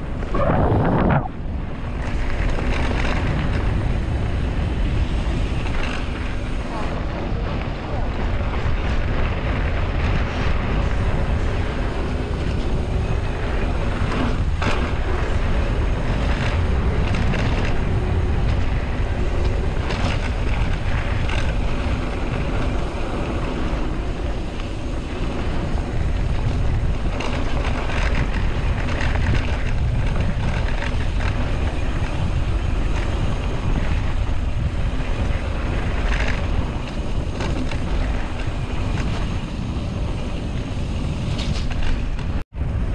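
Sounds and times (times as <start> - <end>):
wind rushing over microphone: 0.0 - 42.9
bike knocks and rattles: 24.6 - 42.4.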